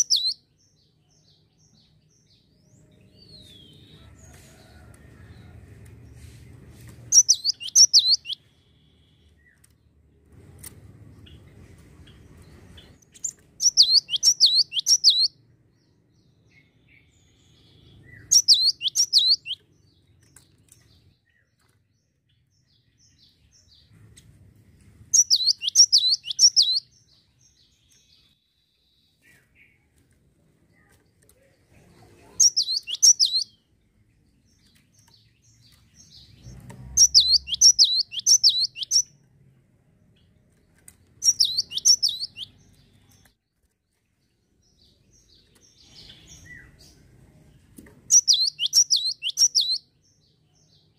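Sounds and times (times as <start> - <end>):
bird whistling downward notes: 37.0 - 39.1, 41.2 - 42.5, 48.1 - 49.8.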